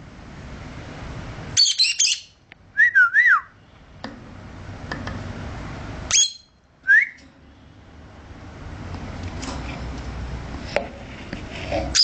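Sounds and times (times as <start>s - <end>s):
lovebird chirps and shrieks: 1.6s - 2.4s, 6.1s - 6.6s
bird wavering whistle: 1.6s - 3.5s, 6.1s - 7.2s.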